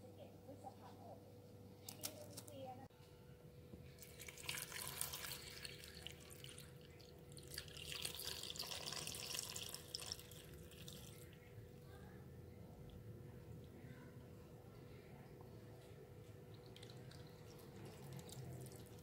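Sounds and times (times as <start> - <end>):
water pouring and splashing: 4.0 - 11.3, 16.6 - 19.0.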